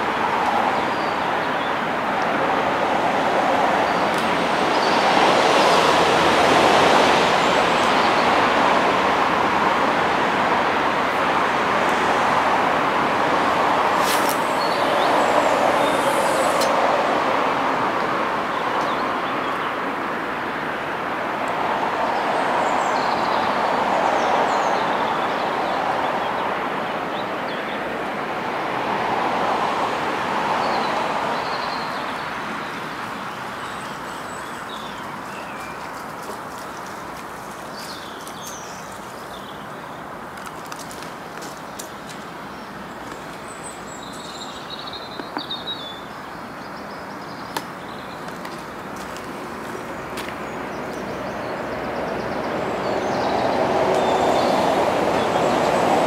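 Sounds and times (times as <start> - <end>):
outdoor rushing noise: 2.4 - 18.8
small birds chirping: 14.0 - 16.8, 30.7 - 54.6.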